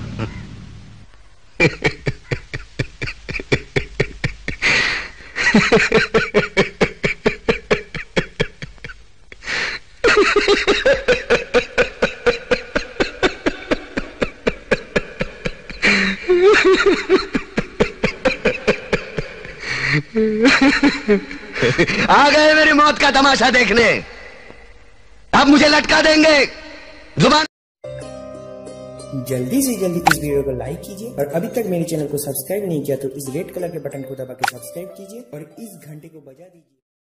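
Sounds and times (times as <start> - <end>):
man laughing loudly: 1.6 - 9.0, 10.0 - 19.6, 20.4 - 22.1.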